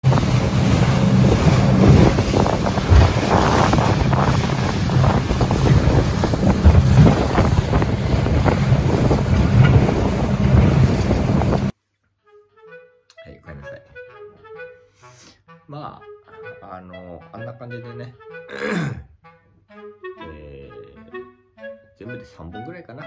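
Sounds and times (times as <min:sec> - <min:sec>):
water rushing past hull: 0:00.0 - 0:11.7
wind buffeting microphone: 0:00.0 - 0:11.7.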